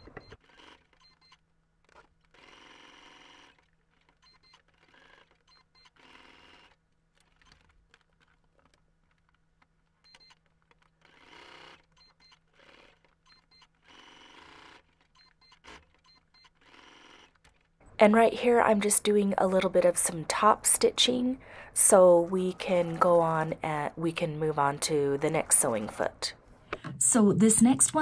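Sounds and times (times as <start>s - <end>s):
sewing machine stitching: 0.0s - 8.7s, 10.0s - 17.7s.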